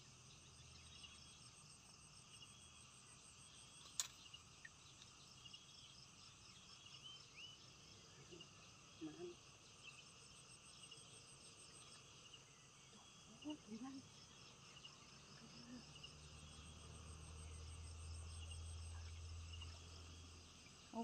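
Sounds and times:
crickets and insects chorus: 0:00.0 - 0:21.0
sharp click: 0:03.8 - 0:04.3.

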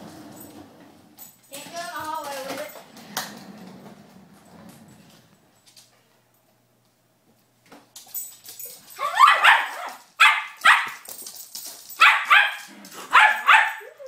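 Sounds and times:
dog barking: 0:09.0 - 0:11.0, 0:12.0 - 0:14.0.

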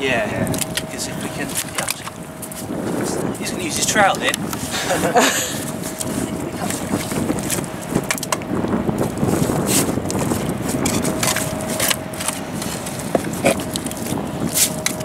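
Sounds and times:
trowel scraping wet mud: 0:09.6 - 0:13.6.

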